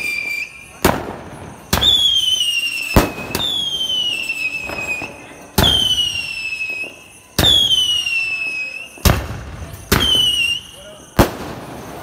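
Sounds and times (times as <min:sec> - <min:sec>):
shrill firework whistle: 0:00.0 - 0:12.0
sharp firework crack: 0:00.7 - 0:06.0, 0:08.9 - 0:10.5
firework launch bangs: 0:00.7 - 0:07.8, 0:08.9 - 0:10.5, 0:11.2 - 0:12.0.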